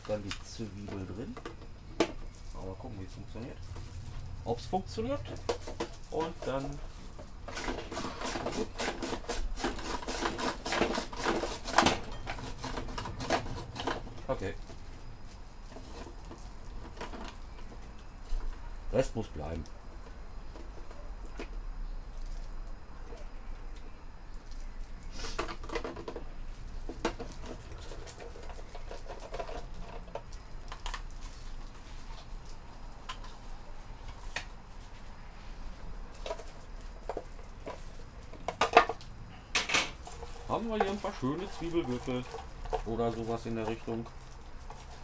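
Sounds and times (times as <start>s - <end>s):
onion scraping across cutter blade: 7.5s - 14.4s, 40.0s - 45.0s.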